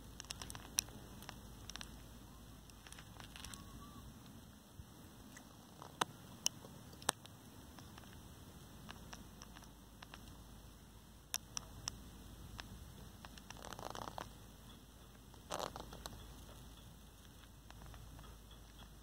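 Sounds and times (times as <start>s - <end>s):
sharp clicks: 8.8s - 10.4s.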